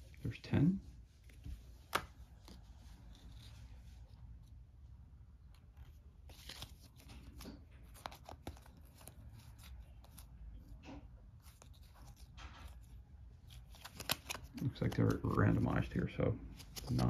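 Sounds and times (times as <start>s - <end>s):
cards sliding together: 1.2s - 3.8s, 5.5s - 10.3s, 11.4s - 15.7s, 16.6s - 17.0s.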